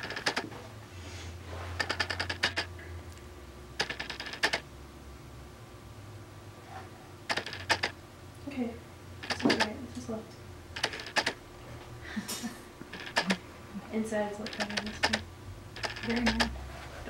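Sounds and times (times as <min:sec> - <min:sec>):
rapid mechanical clicking: 0:00.0 - 0:00.5, 0:01.8 - 0:02.7, 0:03.8 - 0:04.6, 0:07.3 - 0:08.0, 0:09.2 - 0:09.8, 0:10.8 - 0:11.4, 0:12.8 - 0:13.4, 0:14.4 - 0:16.6
faint low hum: 0:00.0 - 0:17.0.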